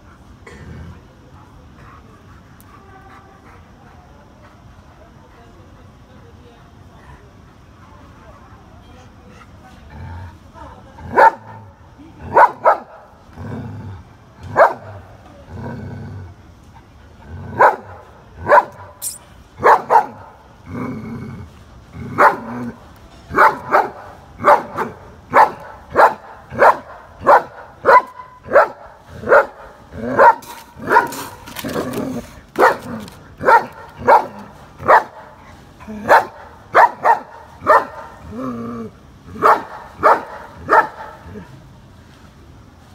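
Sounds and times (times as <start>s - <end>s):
dog growling low: 0.4s - 1.3s, 9.8s - 11.0s, 13.3s - 14.5s, 15.2s - 16.5s, 20.6s - 22.8s, 30.9s - 34.5s, 38.2s - 39.4s.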